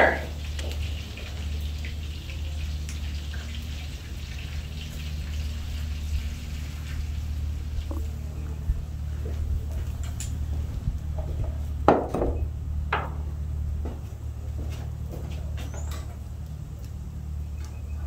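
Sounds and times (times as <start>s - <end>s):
chicken sizzling in pan: 0.0s - 8.0s
low hum: 0.0s - 18.0s.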